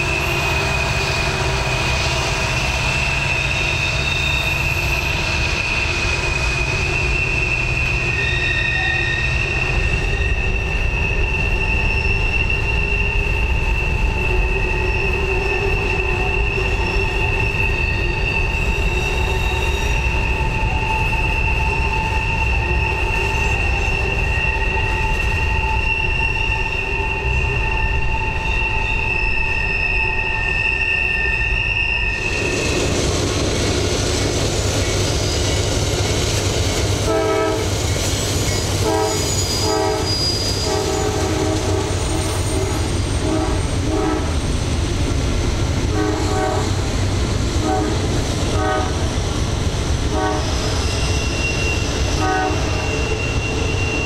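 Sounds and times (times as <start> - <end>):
heavy train rumble: 0.0 - 54.0
train wheel flanges squealing: 0.0 - 54.0
freight train horn toots: 6.6 - 32.2, 37.0 - 37.8, 38.6 - 44.4, 45.9 - 46.9, 47.6 - 49.1, 50.1 - 54.0.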